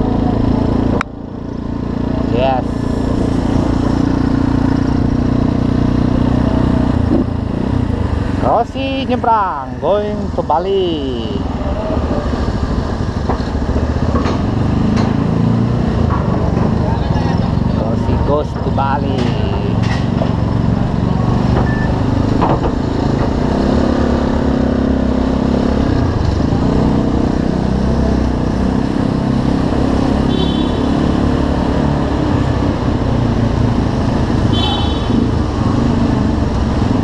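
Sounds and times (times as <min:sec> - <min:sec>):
motorcycle engine running: 0:00.0 - 0:37.0
scooter engines: 0:00.0 - 0:37.0
high-pitched horn toots: 0:30.2 - 0:31.1.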